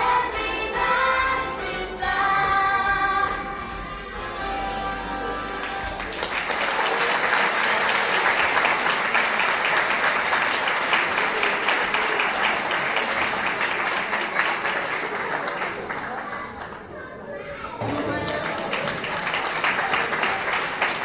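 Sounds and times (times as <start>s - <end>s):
children's choir singing: 0.0s - 4.1s
audience applauding: 5.4s - 17.2s, 17.8s - 21.0s.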